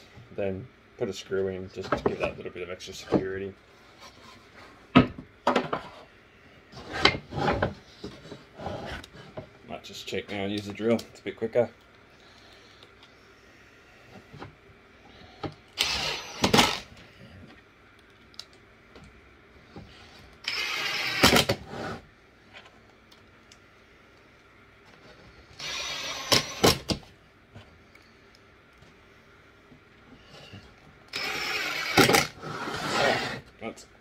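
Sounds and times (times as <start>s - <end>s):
cordless drill driving screws: 15.8s - 16.9s, 20.4s - 21.6s, 25.6s - 26.9s, 31.1s - 33.4s.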